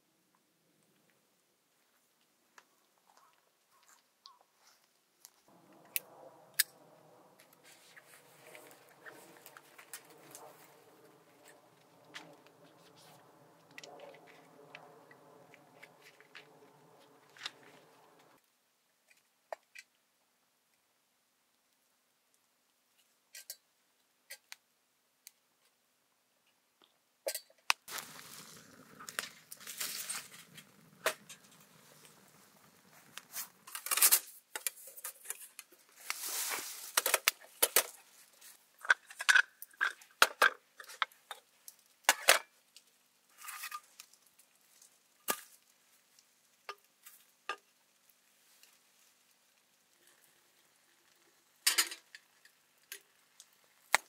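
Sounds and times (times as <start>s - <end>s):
scratchy rustling: 27.9s - 34.2s.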